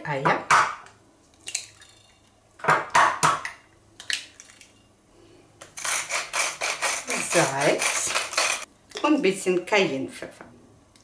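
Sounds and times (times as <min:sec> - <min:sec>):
spice mill grinding: 0:05.6 - 0:08.7.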